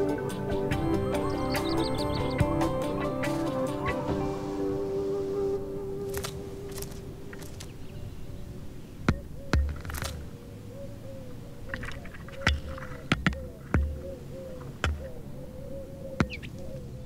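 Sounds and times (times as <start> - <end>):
beaks knocking on camera: 12.4 - 14.0, 14.8 - 15.1.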